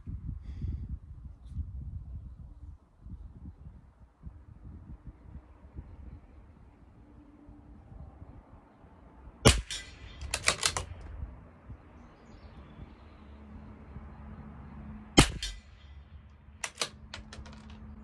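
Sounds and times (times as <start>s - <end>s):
rifle shots: 9.5s - 11.0s, 15.2s - 15.7s
rifle bolt metallic clicks: 9.5s - 11.2s, 16.6s - 17.8s.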